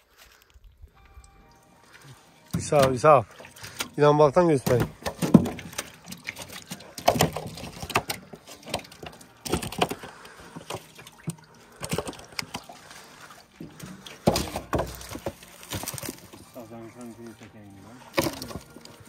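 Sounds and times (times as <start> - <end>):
fish splashing in water: 4.6 - 16.4.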